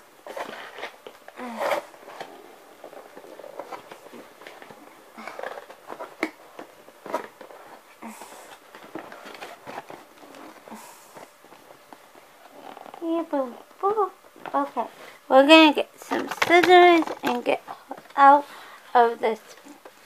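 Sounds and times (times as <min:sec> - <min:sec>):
packaging clicks and rustles: 0:00.2 - 0:13.0, 0:16.0 - 0:18.2.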